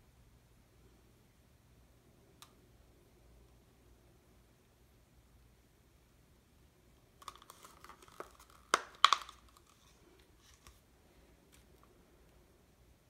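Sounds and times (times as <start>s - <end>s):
plastic cup crinkling and clicking: 7.1s - 10.8s.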